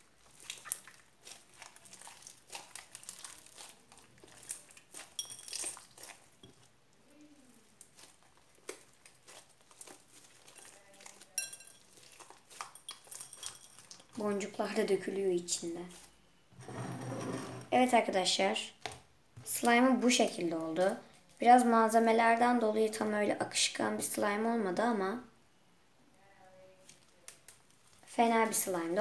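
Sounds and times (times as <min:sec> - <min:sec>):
slime crackling and squelching: 0:00.0 - 0:16.2, 0:26.8 - 0:29.0
clinks against glass bowl: 0:05.2 - 0:05.6, 0:11.4 - 0:11.8.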